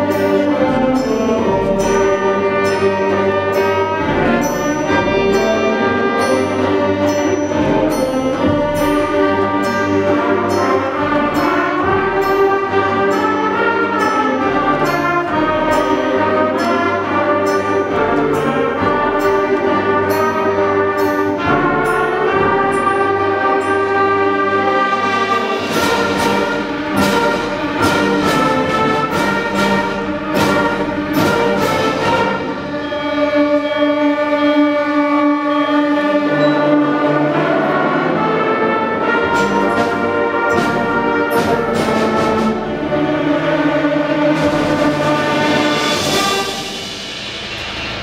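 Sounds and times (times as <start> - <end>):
accented band hits: 0.0 - 48.0
concert band playing: 0.0 - 48.0.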